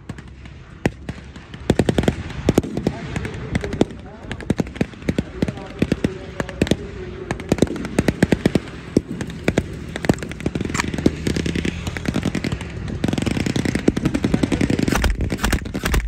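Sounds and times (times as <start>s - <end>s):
distant gunshots: 0.0s - 16.0s
machine-gun bursts: 7.5s - 16.0s.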